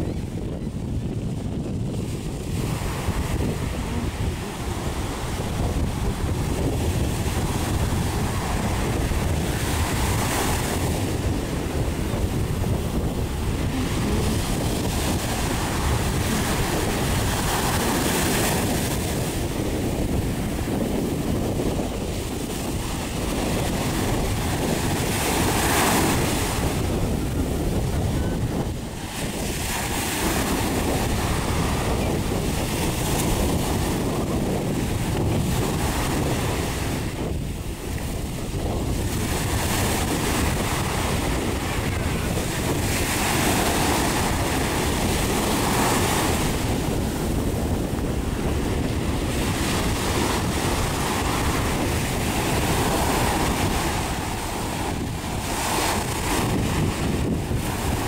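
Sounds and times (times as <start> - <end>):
surf waves hissing over sand: 0.0 - 58.0
wind rumble on microphone: 0.0 - 58.0.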